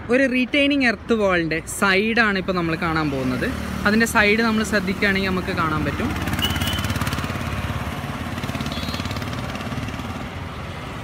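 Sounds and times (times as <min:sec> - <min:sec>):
motorcycle engine passing: 0:04.6 - 0:10.5.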